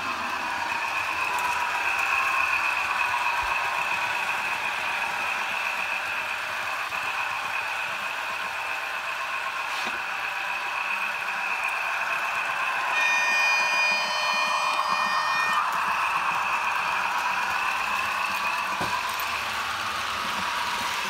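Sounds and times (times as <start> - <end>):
model train motor whine: 0.0 - 21.0
wheels clattering on rails: 0.0 - 21.0
shrill high tones: 12.8 - 18.4.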